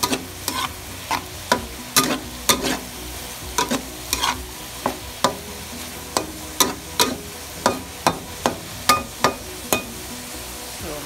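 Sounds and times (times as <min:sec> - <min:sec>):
metal spatula clacking on wok: 0:00.0 - 0:02.8, 0:03.6 - 0:05.4, 0:06.2 - 0:10.0
pan sizzling: 0:00.0 - 0:11.0.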